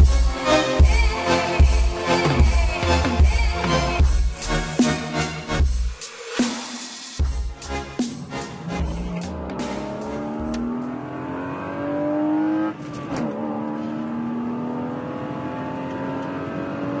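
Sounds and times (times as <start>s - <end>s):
car engine accelerating: 7.2s - 17.0s.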